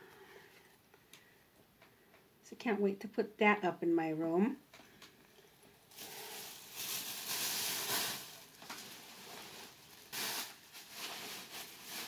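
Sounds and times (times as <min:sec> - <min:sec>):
shopping bag rustling: 0:05.9 - 0:12.0.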